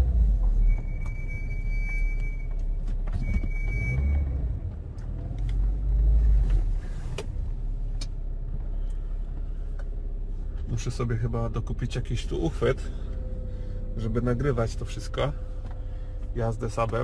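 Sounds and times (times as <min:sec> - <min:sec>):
car engine and road rumble: 0:00.0 - 0:17.0
short high squeals: 0:00.6 - 0:02.6.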